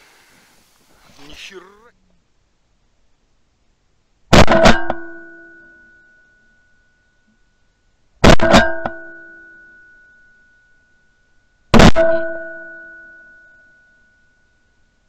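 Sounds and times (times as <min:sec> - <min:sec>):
shotgun shots: 0:04.3 - 0:04.9, 0:08.2 - 0:08.7
metallic barrel ringing: 0:04.5 - 0:07.2, 0:08.4 - 0:14.6.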